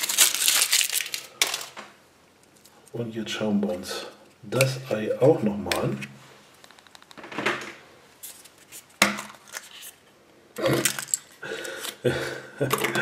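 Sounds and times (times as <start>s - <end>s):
paper and plastic rustling: 0.0s - 1.9s, 8.2s - 10.0s
plastic capsule clicking: 6.6s - 7.3s.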